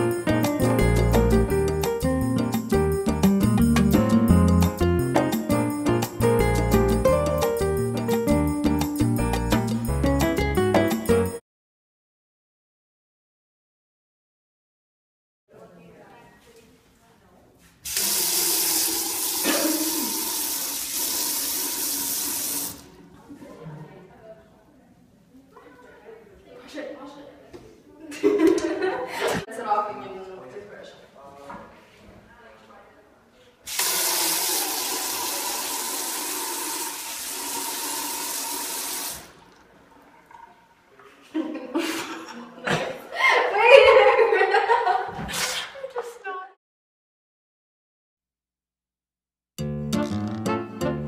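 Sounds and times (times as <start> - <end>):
faucet running into sink: 17.9 - 23.0, 33.7 - 41.1.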